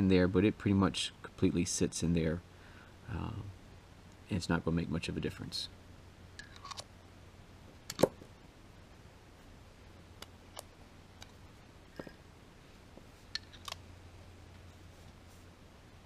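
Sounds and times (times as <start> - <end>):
faint low hum: 0.0 - 16.0
small metal parts clicking: 13.3 - 13.8.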